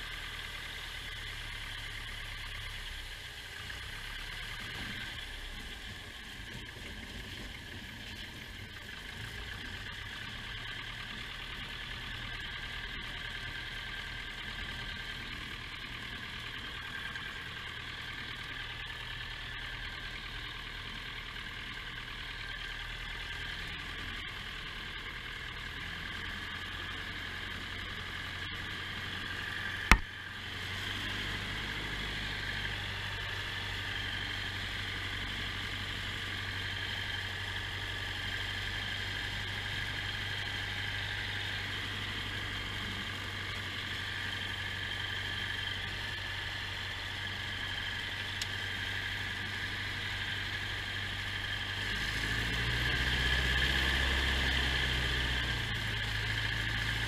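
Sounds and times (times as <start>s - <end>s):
light aircraft piston engine: 0.0s - 57.0s
sharp knock: 29.9s - 30.1s.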